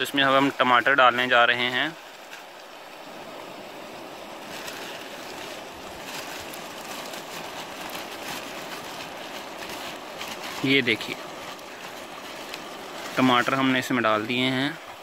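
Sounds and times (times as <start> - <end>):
river water flowing: 0.0 - 15.0
wind: 0.0 - 15.0
plastic bag crinkling: 4.3 - 14.0.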